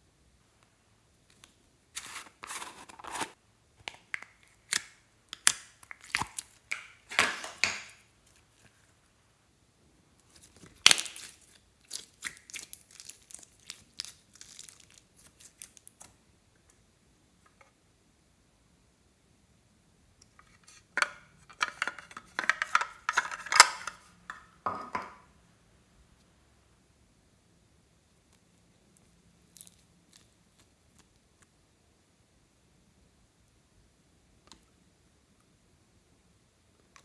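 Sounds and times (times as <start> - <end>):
plastic lid crinkling and tearing: 1.3 - 8.8, 10.3 - 16.1, 21.5 - 24.1.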